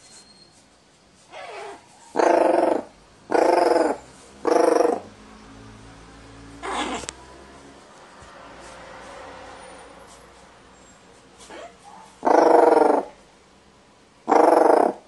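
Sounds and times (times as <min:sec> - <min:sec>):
crow harsh calls: 0:01.4 - 0:05.1, 0:06.6 - 0:07.0, 0:12.2 - 0:13.2, 0:14.2 - 0:15.0.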